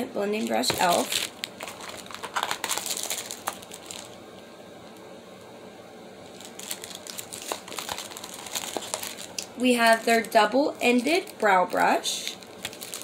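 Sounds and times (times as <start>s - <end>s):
packaging crinkling: 0.3s - 4.5s, 6.2s - 13.0s.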